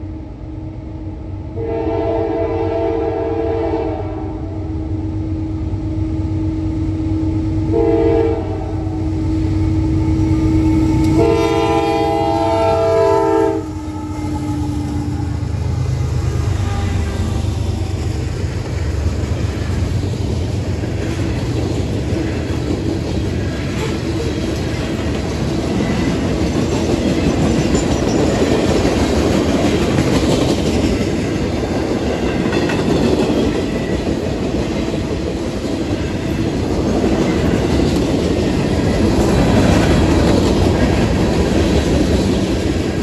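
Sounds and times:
train wheels rumbling on rail: 0.0 - 43.0
clickety-clack over rail joints: 14.8 - 43.0.

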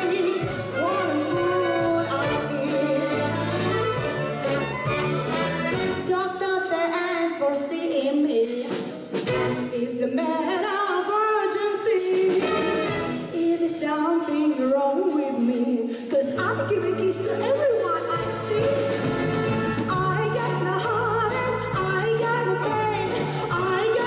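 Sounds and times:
woman singing into microphone: 0.0 - 3.9, 9.6 - 12.7, 13.4 - 19.0, 19.9 - 24.0
mandolins and violins playing: 0.0 - 6.1.

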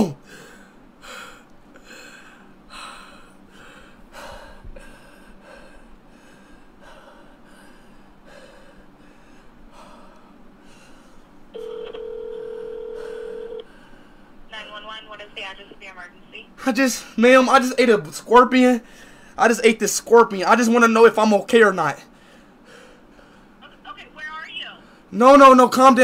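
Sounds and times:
anxious breathing: 0.0 - 11.5, 12.1 - 14.5, 18.8 - 19.5, 22.0 - 23.7, 24.8 - 25.2
phone ringback tone: 11.6 - 13.6.

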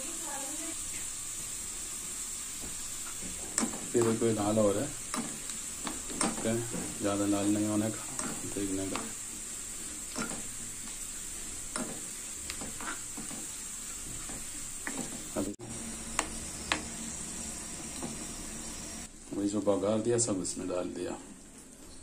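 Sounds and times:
onion and spices sizzling in oil: 0.0 - 21.6
steel spoon scraping pan: 12.5 - 14.7.

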